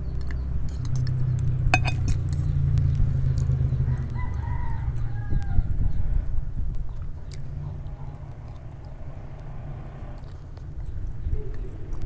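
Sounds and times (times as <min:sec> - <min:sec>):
cutlery clinking on glass plate: 0:01.8 - 0:02.2
low rumble: 0:05.4 - 0:12.0.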